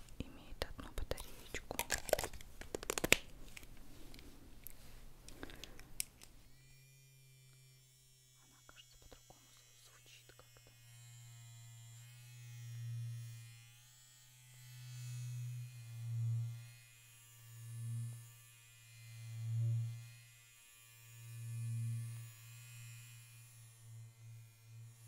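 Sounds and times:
electric toothbrushes buzzing: 5.4s - 25.0s.

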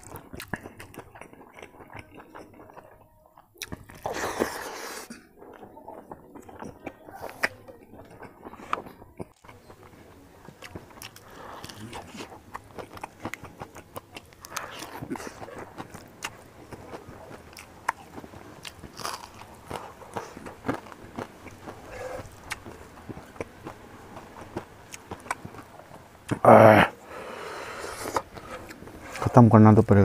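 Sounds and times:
wet chewing and lip smacks: 3.6s - 9.9s, 10.6s - 26.4s.

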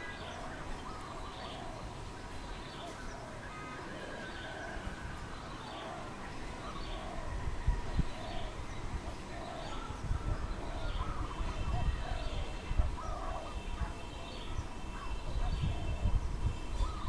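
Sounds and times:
dove cooing: 2.8s - 5.0s, 5.6s - 13.6s
gusty wind rumble: 6.4s - 13.9s, 14.5s - 17.0s.

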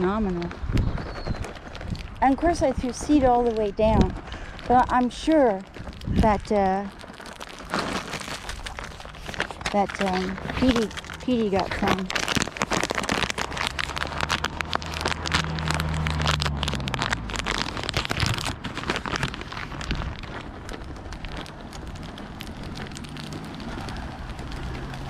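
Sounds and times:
plastic snack bag crinkling: 0.0s - 25.0s
car passing: 13.5s - 17.9s, 21.8s - 25.0s.

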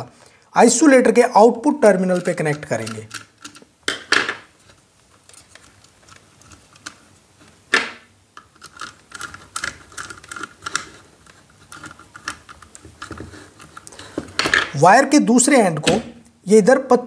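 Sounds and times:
screwdriver clicks and scrapes: 8.4s - 14.7s.

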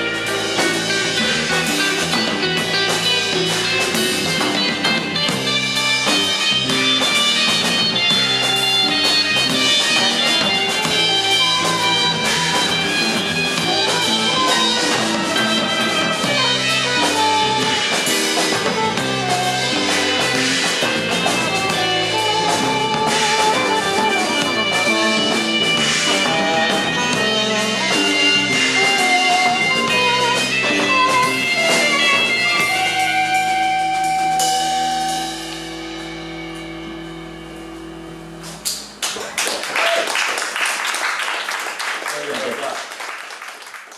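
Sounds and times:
live rock band playing: 0.0s - 41.0s
audience clapping and cheering: 39.0s - 43.9s.

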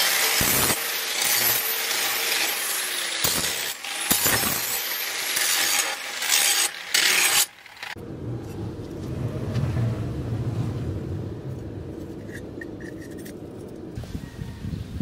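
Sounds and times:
angle grinder grinding steel: 0.0s - 8.0s.

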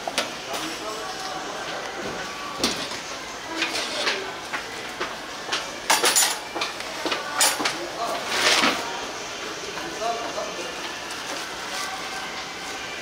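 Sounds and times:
kitchen utensils and dishes clinking: 5.9s - 8.8s.

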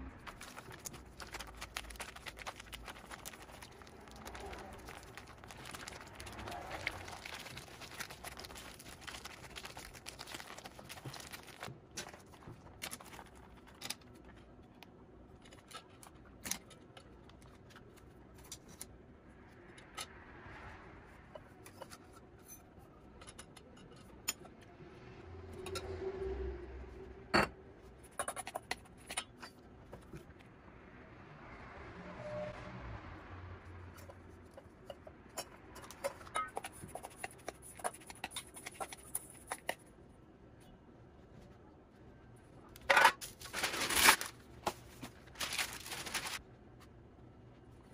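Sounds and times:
plastic pouch crinkling: 0.2s - 13.7s, 43.2s - 46.4s.

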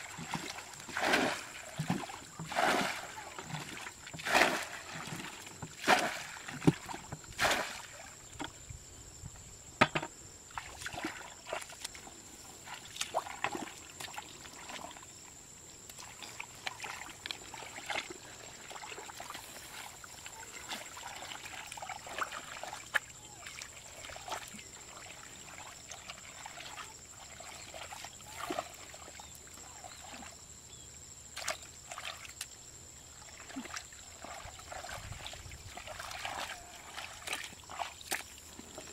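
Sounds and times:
hands sloshing in mud: 0.0s - 8.0s, 15.9s - 30.3s, 33.3s - 38.9s
muddy water splashing: 0.0s - 8.5s, 10.5s - 15.1s, 15.8s - 30.4s, 31.3s - 38.9s.

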